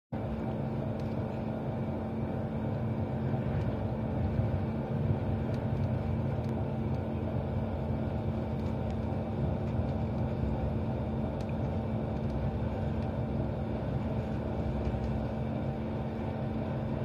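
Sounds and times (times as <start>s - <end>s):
train running rumble: 0.2s - 17.0s.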